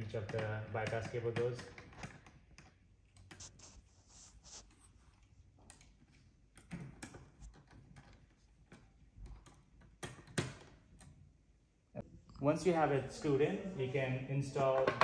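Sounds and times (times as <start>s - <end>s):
small scrapes of hand work: 3.2s - 5.3s.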